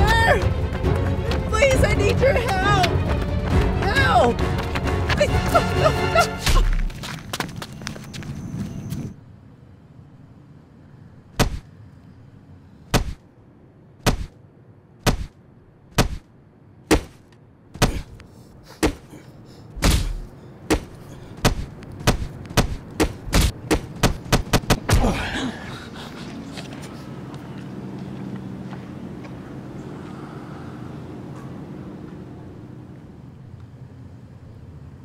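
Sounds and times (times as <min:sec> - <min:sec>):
punches landing: 0:11.4 - 0:11.7, 0:12.9 - 0:13.2, 0:14.0 - 0:14.4, 0:15.0 - 0:16.3, 0:16.9 - 0:17.2, 0:17.8 - 0:18.2, 0:18.8 - 0:19.2, 0:19.8 - 0:25.4.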